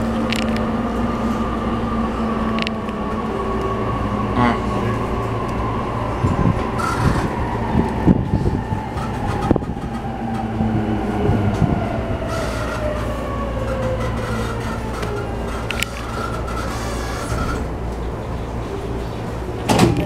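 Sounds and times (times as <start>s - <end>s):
train rumble: 0.0s - 20.0s
train motor whine: 6.7s - 7.9s, 11.5s - 17.8s.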